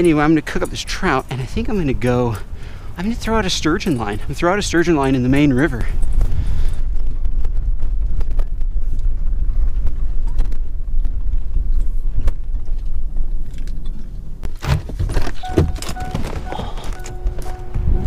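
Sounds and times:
truck engine rumble: 0.0 - 18.0
door clicks and knocks: 14.6 - 17.8
vehicle warning chime beeping: 15.3 - 18.0.

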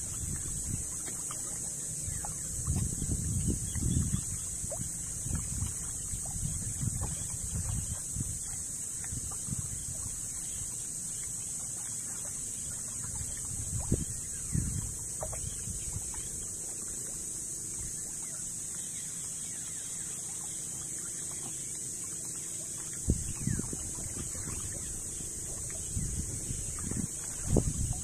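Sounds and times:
wind buffeting microphone: 0.0 - 10.6, 13.0 - 16.5, 23.0 - 28.0
sea water sloshing and lapping: 0.0 - 28.0.

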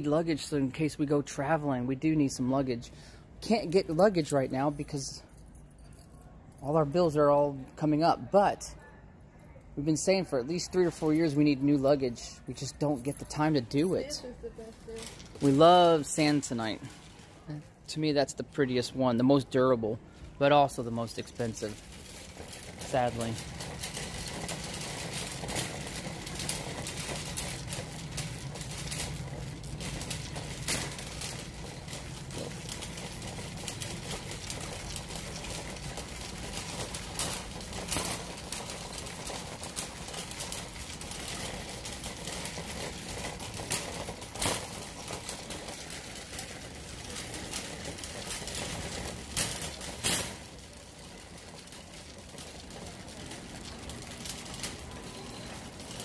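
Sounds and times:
shopping cart rattling on concrete: 0.0 - 5.3, 5.9 - 8.7, 9.8 - 56.0.

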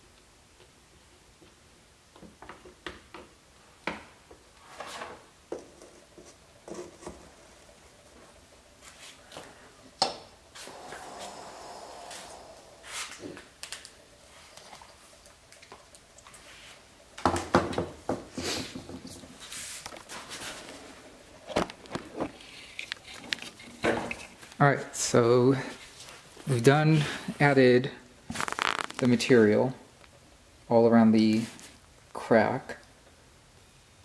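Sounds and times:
short rubbing hiss: 10.6 - 13.4.

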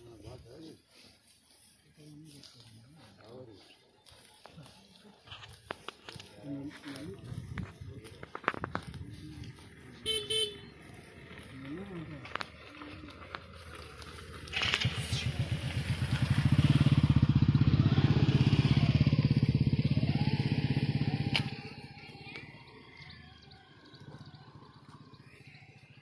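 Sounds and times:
motor vehicle passing by: 5.6 - 26.0.

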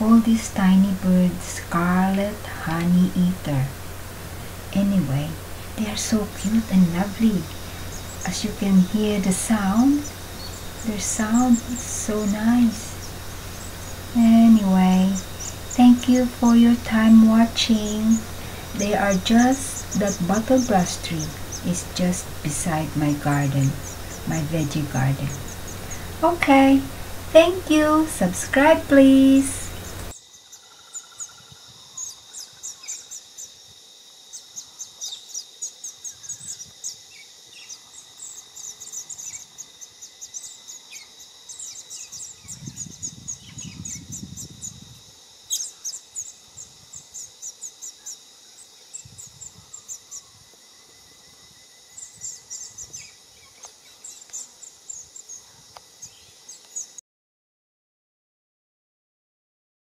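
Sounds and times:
birds chirping: 0.0 - 33.6, 34.2 - 50.4, 51.8 - 57.0.

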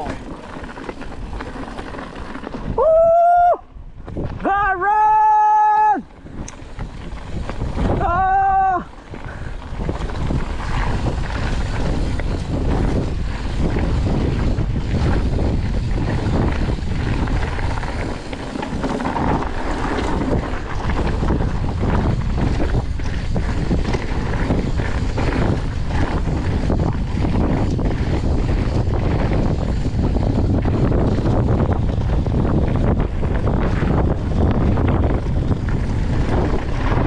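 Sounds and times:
tyres crunching on dirt: 0.0 - 2.8, 6.0 - 37.0
bike rattling: 0.0 - 37.0
wind buffeting microphone: 0.0 - 37.0.

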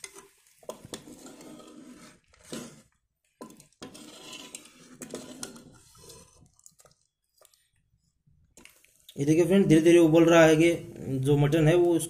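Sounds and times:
metal ladle scraping pot: 0.0 - 7.0.

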